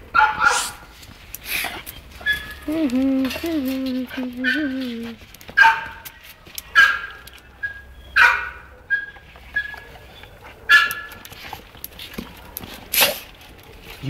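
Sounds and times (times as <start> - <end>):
dog yelping whines: 0.2 - 0.9, 1.8 - 6.0, 6.7 - 11.5.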